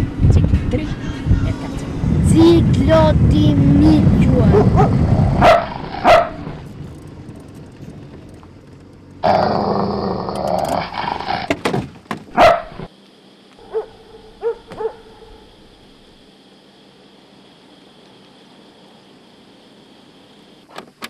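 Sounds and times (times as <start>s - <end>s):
dog growling: 4.3s - 6.6s, 9.2s - 11.5s
dog barking: 4.5s - 6.6s, 12.4s - 12.9s, 13.6s - 15.5s.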